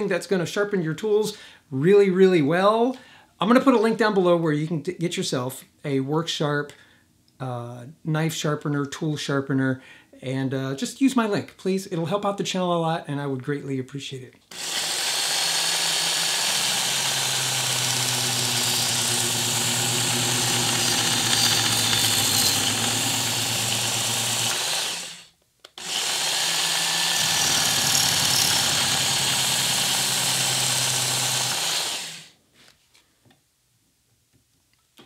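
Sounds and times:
belt sharpener grinding steel blade: 0:14.5 - 0:25.2.

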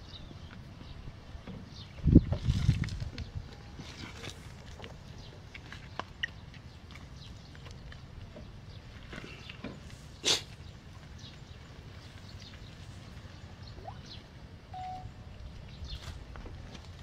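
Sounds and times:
steady high note: 0:14.8 - 0:15.1.

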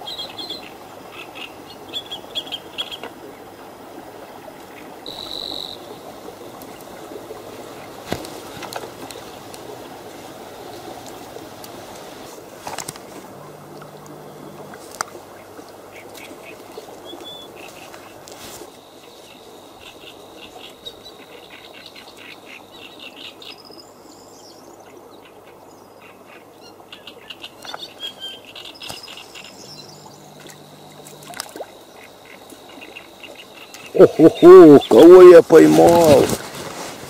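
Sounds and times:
steady background hiss: 0:00.0 - 0:37.0
faint clicks: 0:06.5 - 0:18.4, 0:28.8 - 0:33.9
small birds chirping: 0:26.0 - 0:36.2.

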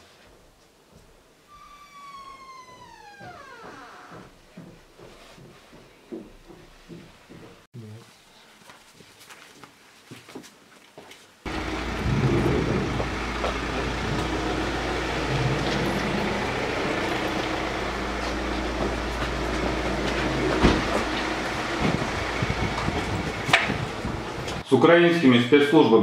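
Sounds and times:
loud rumbling drone: 0:11.5 - 0:24.6.

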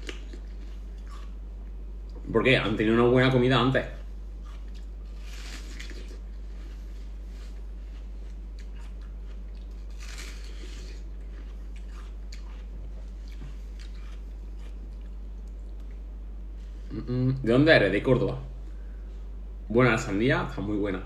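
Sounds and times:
person chewing watermelon: 0:00.0 - 0:02.2, 0:04.2 - 0:16.0
steady low hum: 0:00.0 - 0:21.0.

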